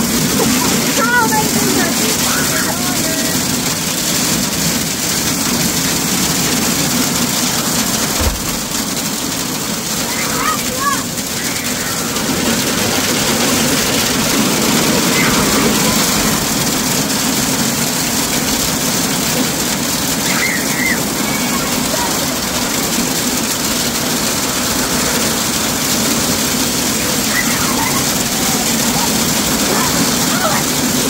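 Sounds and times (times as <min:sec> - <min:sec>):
hail striking metal and pavement: 0:00.0 - 0:31.0
child shouting: 0:00.8 - 0:03.3, 0:10.0 - 0:12.2, 0:15.0 - 0:16.5, 0:20.2 - 0:22.6, 0:27.1 - 0:30.9.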